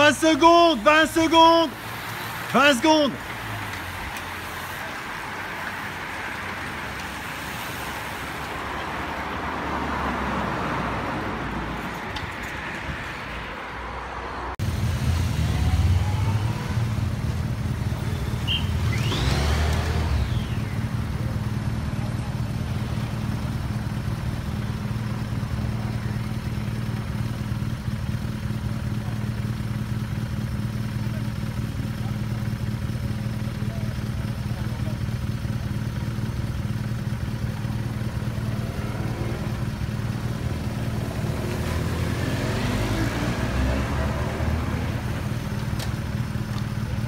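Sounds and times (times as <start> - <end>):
motorcycle passing by: 14.6 - 27.0, 37.2 - 47.0
bicycles whirring past: 14.8 - 21.1.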